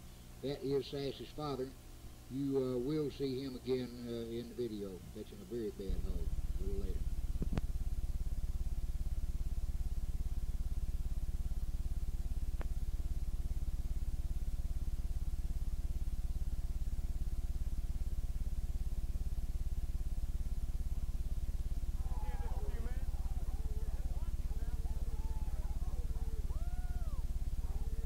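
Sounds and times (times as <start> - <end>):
low electrical hum: 0.0 - 28.0.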